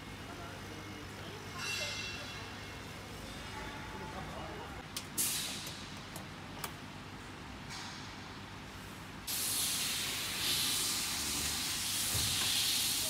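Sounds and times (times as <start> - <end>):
air pump hissing: 9.3 - 13.0.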